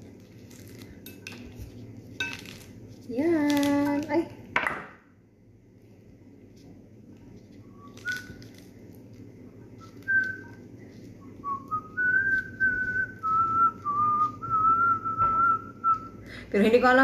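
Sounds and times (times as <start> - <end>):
person whistling a tune: 9.8 - 10.6, 11.4 - 16.2.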